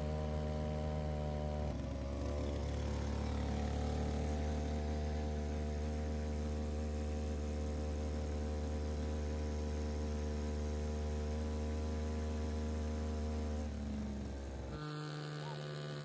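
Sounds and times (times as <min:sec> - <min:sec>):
motor boat engine humming: 0:01.4 - 0:06.1, 0:13.3 - 0:16.0.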